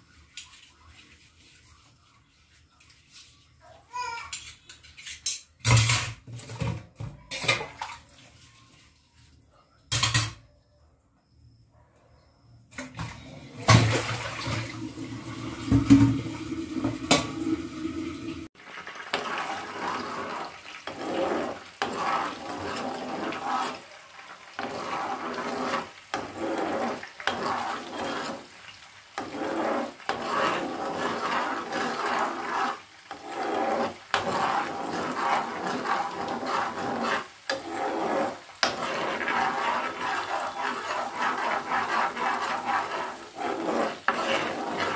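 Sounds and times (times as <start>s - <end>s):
butter sizzling in a frying pan: 18.6s - 44.9s.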